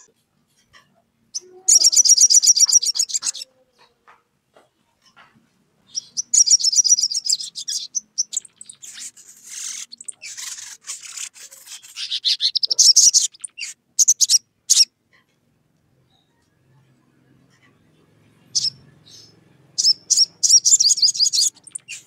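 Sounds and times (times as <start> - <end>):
bird chattering chirps: 1.3 - 3.9, 5.9 - 14.9, 18.5 - 22.0.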